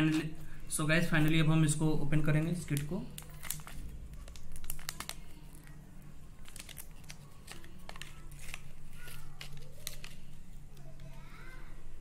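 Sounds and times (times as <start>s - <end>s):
foil pouch tearing and crinkling: 2.7s - 5.8s, 6.4s - 10.4s.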